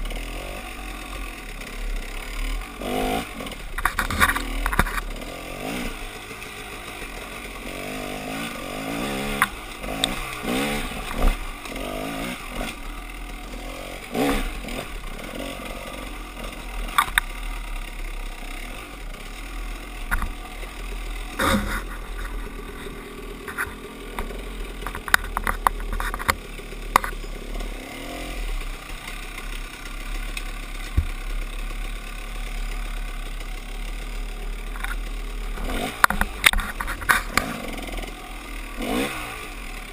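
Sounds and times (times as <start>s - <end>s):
dirt bike engine revving: 0.0s - 39.9s
sharp knocks and clatter: 3.6s - 5.2s, 16.8s - 17.4s, 20.0s - 20.5s, 21.3s - 27.4s, 30.3s - 31.3s, 34.7s - 37.7s.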